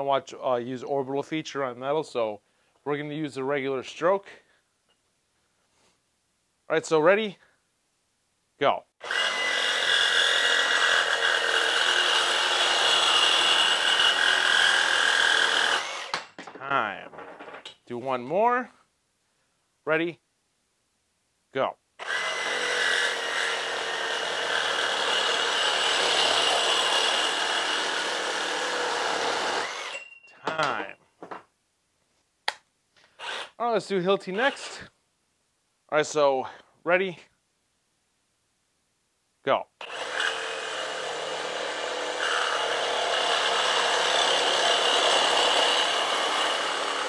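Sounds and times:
reciprocating saw cutting metal pipe: 0:09.0 - 0:16.3, 0:22.0 - 0:30.2, 0:34.3 - 0:34.8, 0:39.8 - 0:47.0.

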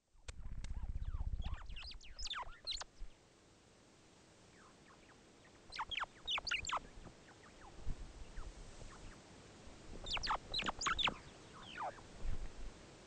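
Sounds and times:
birds chirping: 0:00.8 - 0:03.2, 0:04.5 - 0:09.3, 0:09.9 - 0:12.6.

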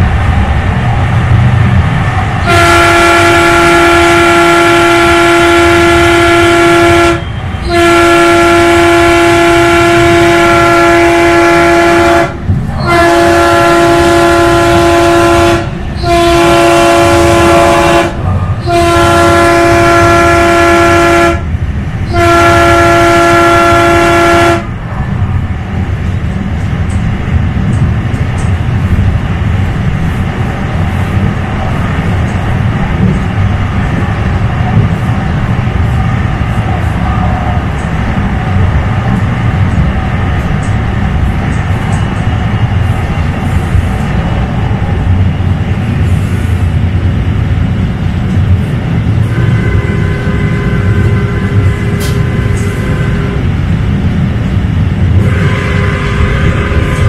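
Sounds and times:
train wheels rumbling on track: 0:00.0 - 0:57.0
train horn blasts: 0:02.4 - 0:24.8, 0:49.2 - 0:53.7, 0:55.1 - 0:57.0.

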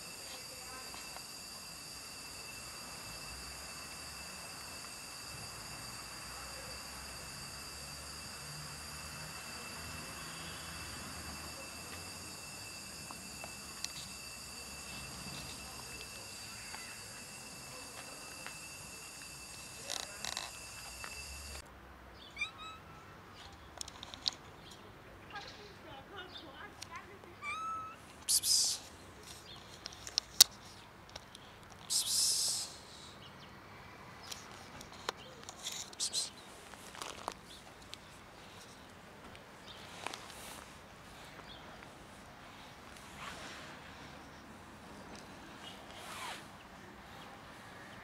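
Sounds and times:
background hiss: 0:00.0 - 0:21.6, 0:28.0 - 0:33.4
high-pitched whine: 0:00.0 - 0:21.6
cats crunching dry kibble: 0:36.7 - 0:37.6.

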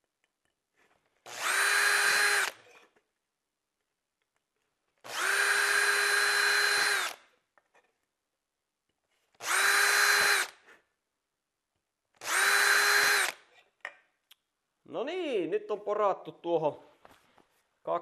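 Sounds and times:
cordless drill whining through aluminium: 0:01.2 - 0:02.9, 0:05.0 - 0:07.3, 0:09.3 - 0:10.7, 0:12.2 - 0:13.5.

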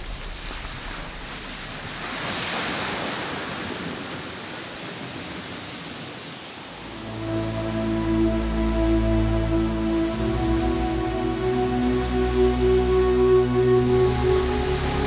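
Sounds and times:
surf washing onto beach: 0:00.0 - 0:07.4.

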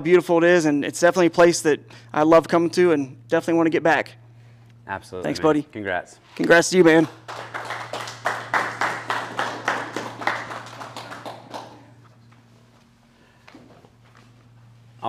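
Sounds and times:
people clapping: 0:06.4 - 0:12.2.

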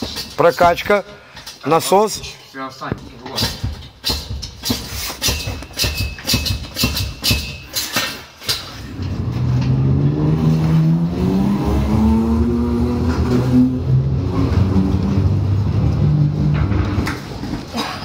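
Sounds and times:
loud drawn-out rising tone: 0:08.9 - 0:17.0.

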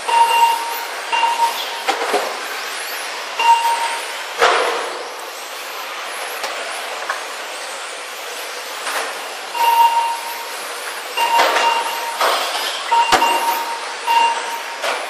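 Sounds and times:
steady hiss of running cars: 0:00.0 - 0:15.0
short electronic beeps: 0:00.1 - 0:01.8, 0:03.4 - 0:04.0, 0:09.6 - 0:10.5, 0:11.2 - 0:14.9.

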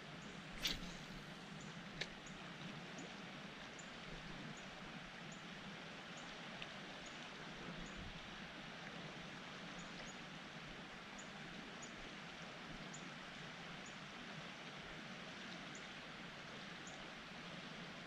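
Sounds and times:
thin high chirp: 0:00.6 - 0:01.3.

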